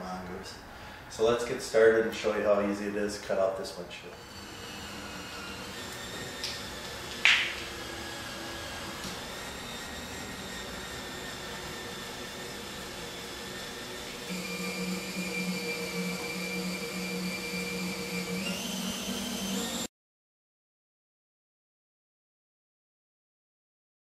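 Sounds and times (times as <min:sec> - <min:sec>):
cordless drill motor whine: 0:04.2 - 0:19.9
sharp snap: 0:07.2 - 0:07.6.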